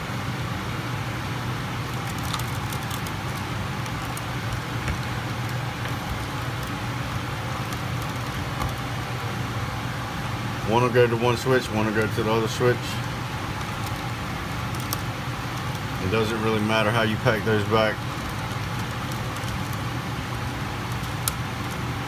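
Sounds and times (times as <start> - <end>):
broad rushing background: 0.0 - 22.0
low machine hum: 0.0 - 22.0.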